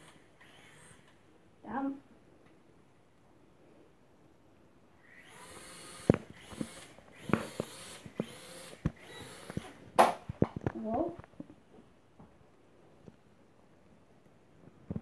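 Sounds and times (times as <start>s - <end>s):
quadcopter propellers whirring: 5.0s - 9.7s.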